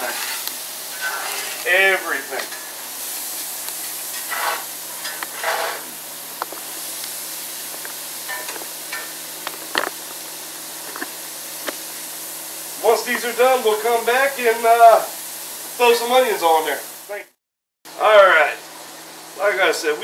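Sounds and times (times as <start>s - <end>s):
spatula scraping a pan: 0.0s - 1.8s, 3.8s - 6.0s
mushrooms sizzling in butter: 0.0s - 17.3s.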